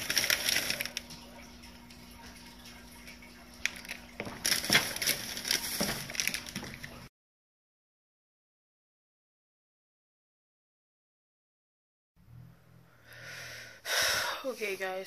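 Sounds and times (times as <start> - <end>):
plastic wrapper crinkling: 0.0 - 1.3, 3.6 - 7.1.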